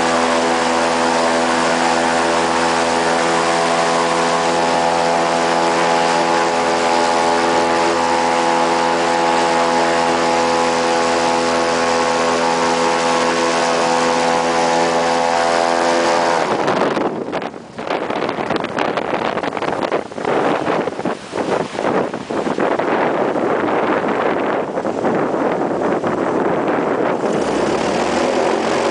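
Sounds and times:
airboat engine and propeller: 0:00.0 - 0:28.9
wind buffeting microphone: 0:00.0 - 0:28.9.

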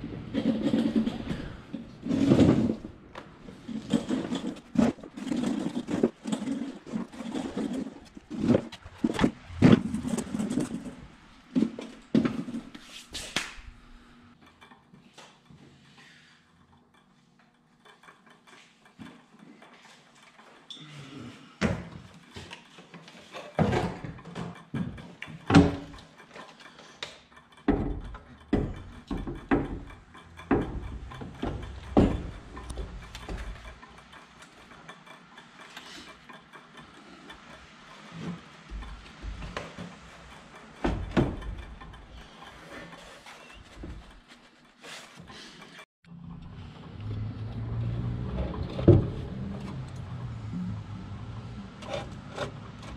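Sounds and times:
metal clanks and knocks: 0:00.0 - 0:12.8, 0:21.6 - 0:52.9
fuel gauge float rattling: 0:27.4 - 0:35.0.

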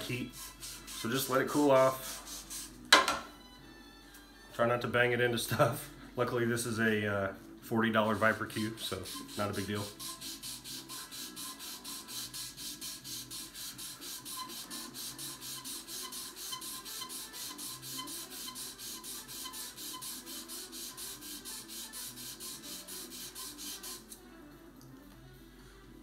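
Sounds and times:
sandpaper rasping: 0:00.0 - 0:02.8, 0:08.8 - 0:24.1
faint background music: 0:00.0 - 0:26.0.

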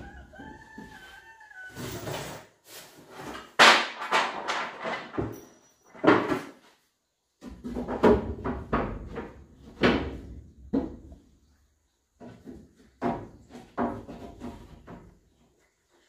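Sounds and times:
wooden strips knocking and clattering: 0:03.2 - 0:06.7, 0:07.4 - 0:11.2, 0:12.1 - 0:15.4.

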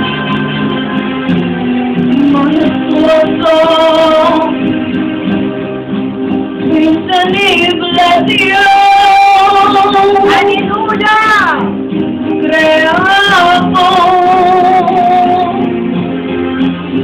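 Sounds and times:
live band with drums and guitar: 0:00.0 - 0:17.0
boy singing into a microphone: 0:06.7 - 0:11.6, 0:12.5 - 0:15.6.

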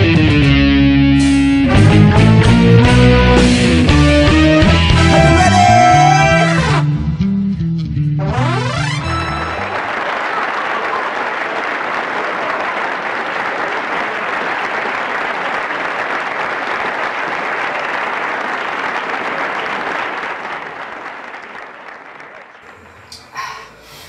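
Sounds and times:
audience applause: 0:04.9 - 0:06.8, 0:08.5 - 0:22.9.

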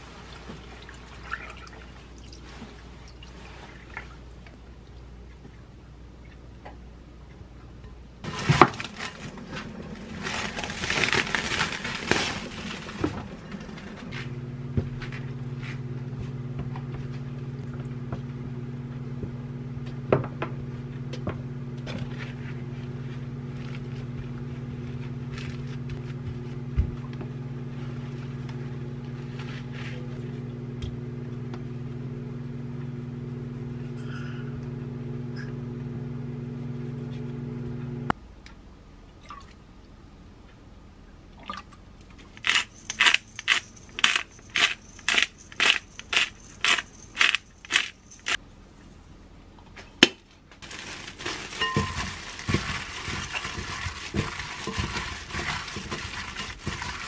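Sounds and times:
steady low hum: 0:02.2 - 0:57.0
paper towel crinkling and scraping: 0:08.2 - 0:14.3, 0:22.1 - 0:26.6, 0:50.6 - 0:57.0.

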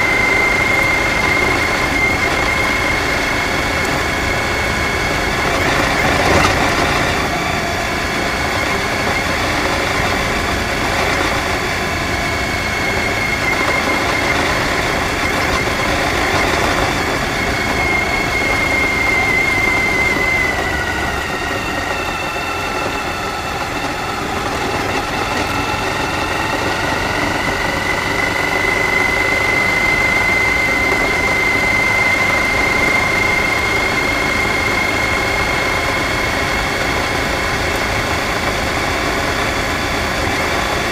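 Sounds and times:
motorcycle engine running: 0:00.0 - 0:40.9
wind: 0:00.0 - 0:40.9.

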